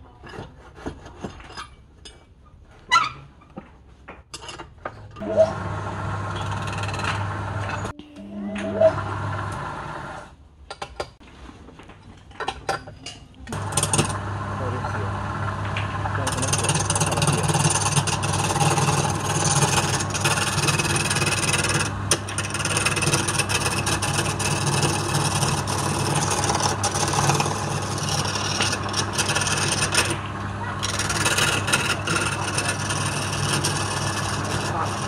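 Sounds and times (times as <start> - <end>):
tool scraping spinning wood: 0.2 - 1.8, 5.2 - 7.9, 13.5 - 35.0
wood lathe motor hum: 5.2 - 7.9, 8.6 - 10.3, 13.5 - 35.0.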